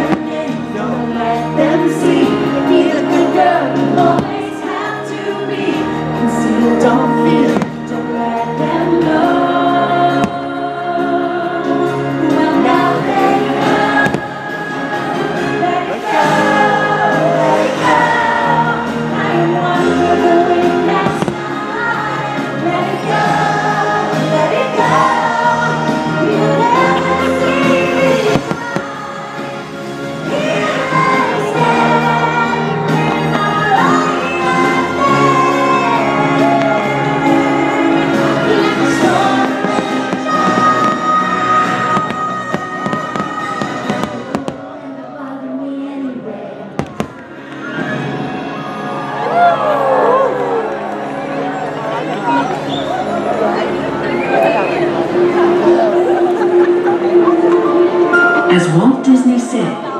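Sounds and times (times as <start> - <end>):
choir singing sustained chords: 0.0 - 59.9
music: 0.0 - 59.9
firework crack: 21.0 - 21.7, 38.6 - 44.8, 46.8 - 47.3.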